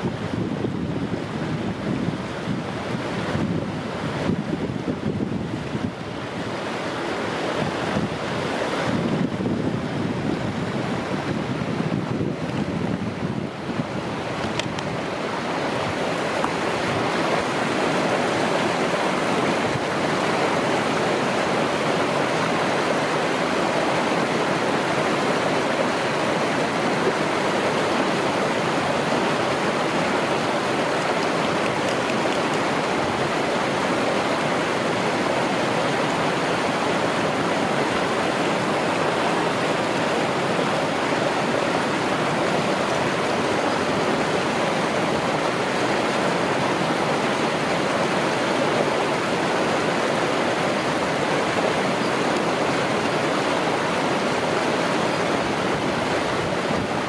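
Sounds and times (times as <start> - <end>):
river water rushing over rocks: 0.0 - 57.0.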